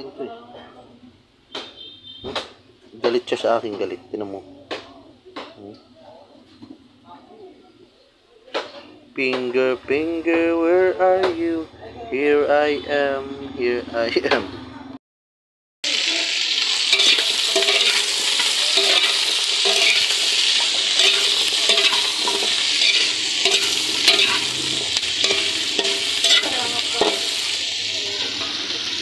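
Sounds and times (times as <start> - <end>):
food sizzling in hot oil: 15.8 - 29.0
metal spatula scraping wok: 16.3 - 29.0.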